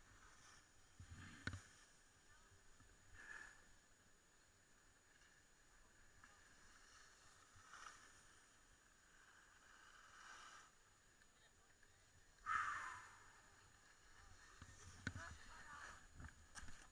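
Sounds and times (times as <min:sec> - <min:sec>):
skis scraping over snow: 0:06.2 - 0:12.0, 0:13.4 - 0:16.9.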